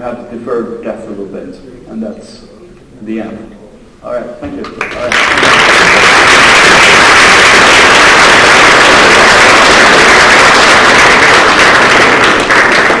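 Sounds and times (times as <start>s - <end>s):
audience applauding: 4.8s - 13.0s.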